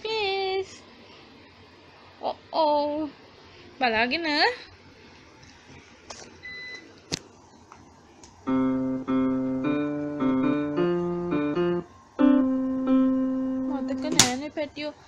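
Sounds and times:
electronic keyboard melody: 8.5s - 14.2s.

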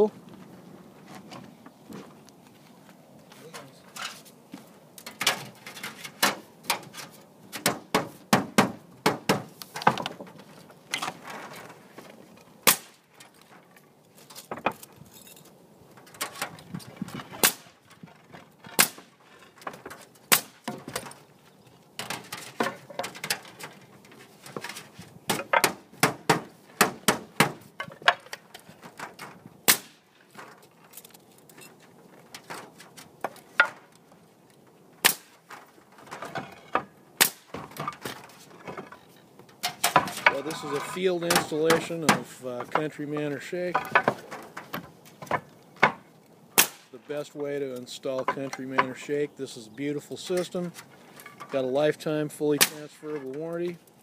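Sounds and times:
metal panels clattering: 5.0s - 8.2s, 22.0s - 31.1s, 37.5s - 46.0s.

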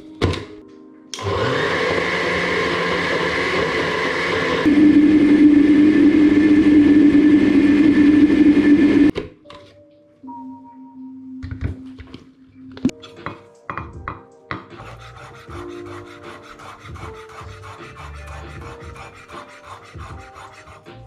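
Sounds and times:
blender motor running: 1.2s - 9.1s.

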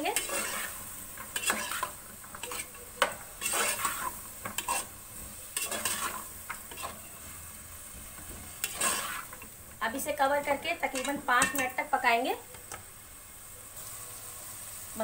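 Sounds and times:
utensil scraping a pot: 0.0s - 5.0s, 5.6s - 7.2s, 8.5s - 9.5s
food sizzling: 0.0s - 15.0s.

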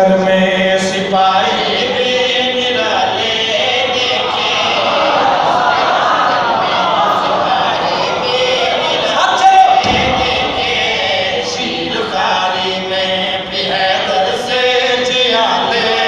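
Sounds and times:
men chanting in unison: 0.0s - 16.0s
heavy thump: 9.8s - 12.2s.

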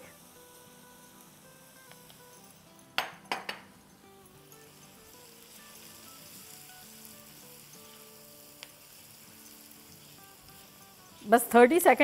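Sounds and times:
onions sizzling in hot oil: 0.0s - 12.0s
quiet background music: 0.0s - 12.0s
utensil tapping a wok: 3.0s - 3.7s.

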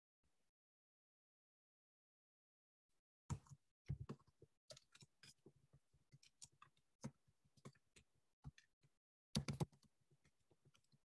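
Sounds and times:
faint clicks and taps: 3.3s - 11.0s.

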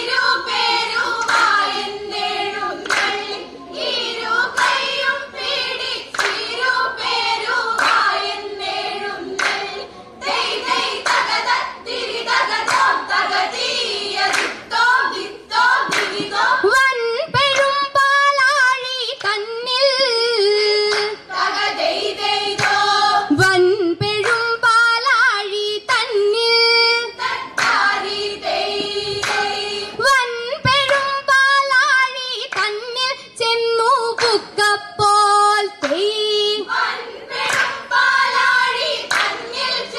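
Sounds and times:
girls singing in chorus: 0.0s - 39.9s
hand claps: 1.0s - 1.6s, 2.8s - 3.4s, 4.4s - 5.0s, 6.1s - 6.7s, 7.7s - 8.2s, 9.3s - 9.7s, 11.0s - 11.4s, 12.5s - 13.0s, 14.2s - 14.6s, 15.8s - 16.5s, 17.5s - 17.8s, 19.1s - 19.4s, 20.8s - 21.2s, 22.5s - 22.8s, 24.2s - 24.6s, 27.5s - 28.0s, 28.7s - 29.6s, 30.8s - 31.2s, 32.4s - 32.8s, 34.1s - 34.5s, 35.8s - 36.1s, 37.4s - 38.4s, 39.0s - 39.5s.

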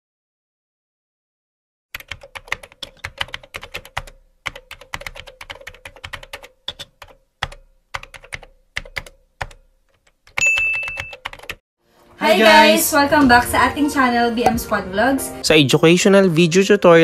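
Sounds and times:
computer keyboard typing: 1.9s - 11.6s.

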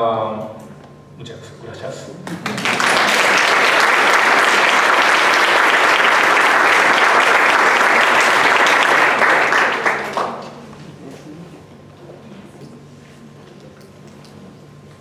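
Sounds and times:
audience applauding: 2.2s - 10.6s.

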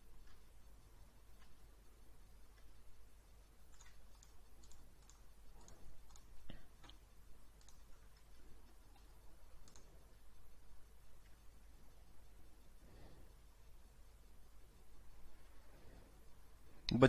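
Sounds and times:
computer mouse clicking: 0.2s - 12.8s.

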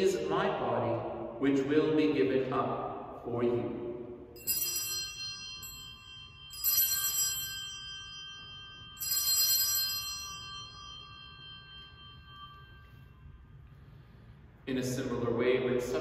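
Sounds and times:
altar bells ringing: 3.5s - 16.0s.

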